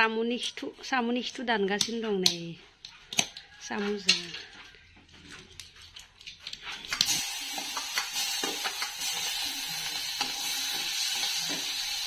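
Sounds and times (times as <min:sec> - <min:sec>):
hot oil sizzling in a pan: 0:06.9 - 0:12.0.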